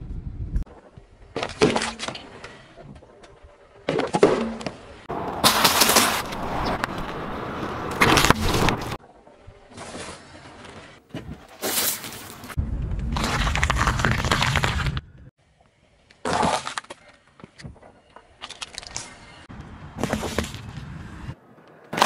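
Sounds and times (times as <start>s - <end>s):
tyres crushing objects: 3.9s - 7.1s.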